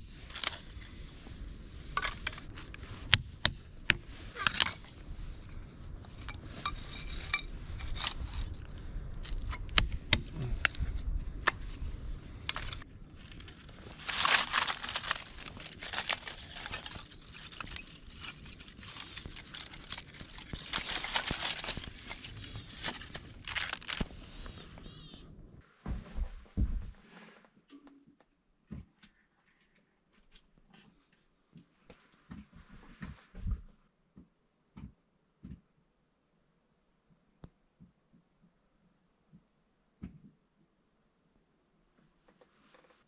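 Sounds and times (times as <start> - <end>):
gloved hands rustling: 0.0 - 25.2
wooden sticks clattering together: 12.4 - 24.1.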